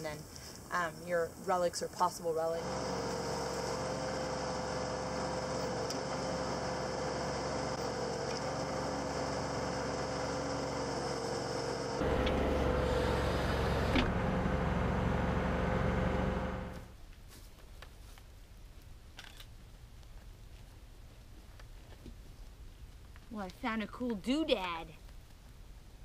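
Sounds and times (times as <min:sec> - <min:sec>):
backhoe engine running: 0:02.6 - 0:16.9.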